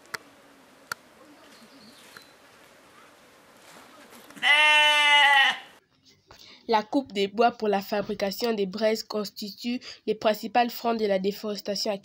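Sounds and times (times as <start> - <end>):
goat bleating: 4.4 - 5.8.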